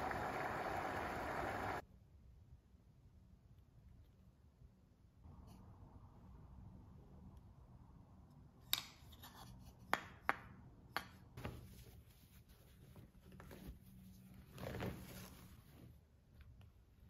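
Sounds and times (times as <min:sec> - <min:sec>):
cloth placemats rustling: 0:11.4 - 0:16.8.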